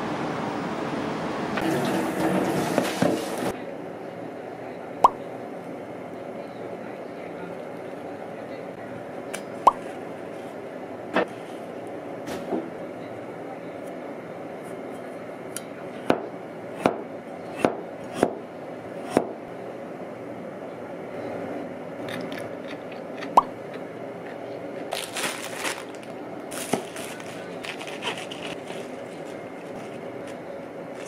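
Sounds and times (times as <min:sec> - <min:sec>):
crackly rustling: 0:24.8 - 0:31.0.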